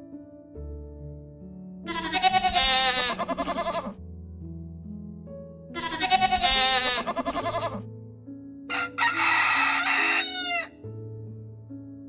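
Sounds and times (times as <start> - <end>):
soft background music: 0.0 - 12.0
rooster crowing: 8.7 - 10.7.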